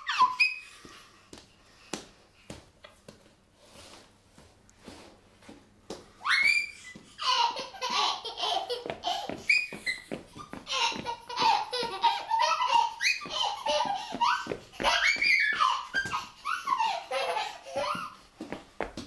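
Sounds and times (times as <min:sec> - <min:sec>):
baby laughing and squealing: 0:00.0 - 0:00.8, 0:06.2 - 0:18.2.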